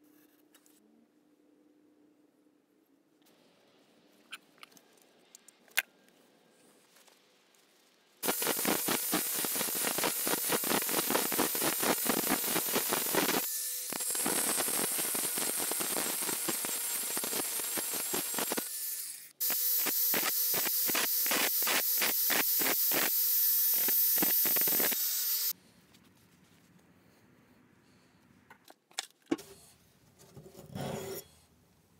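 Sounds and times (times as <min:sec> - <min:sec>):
angle grinder grinding metal: 0:08.2 - 0:25.5.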